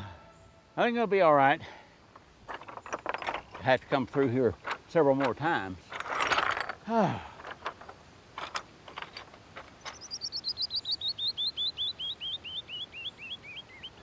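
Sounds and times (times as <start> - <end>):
stones clacking underfoot: 2.1 - 10.2
man grunting: 6.8 - 7.3
songbird whistling cascade: 9.9 - 14.0.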